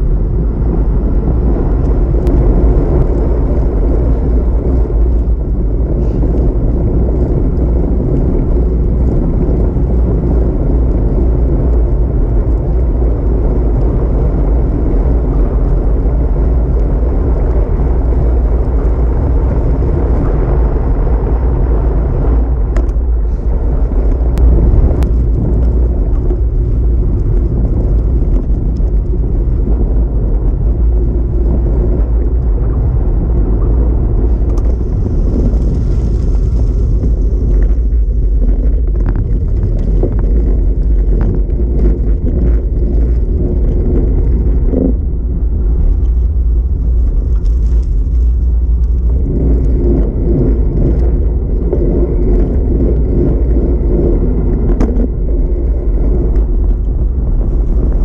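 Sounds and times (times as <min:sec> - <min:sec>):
road and tyre noise: 0:00.0 - 0:58.0
wind buffeting microphone: 0:00.0 - 0:58.0.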